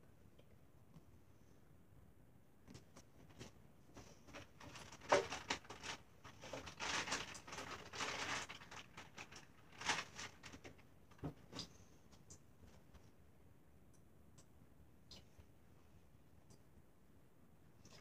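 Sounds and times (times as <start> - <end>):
rubbing and rummaging: 2.8 - 11.7.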